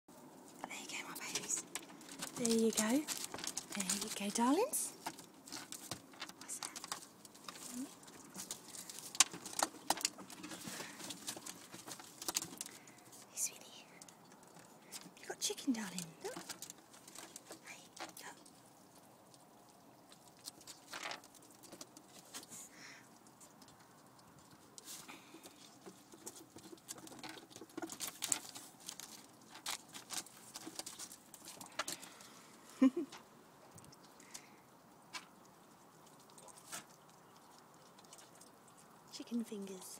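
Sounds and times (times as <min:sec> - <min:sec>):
light rustling: 0:01.0 - 0:15.2
ferrets chewing sharp clicks: 0:01.1 - 0:32.5, 0:33.7 - 0:39.6.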